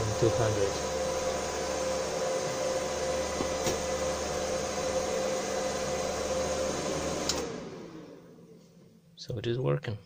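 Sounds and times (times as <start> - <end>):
power supply cooling fan whine: 0.0 - 8.5.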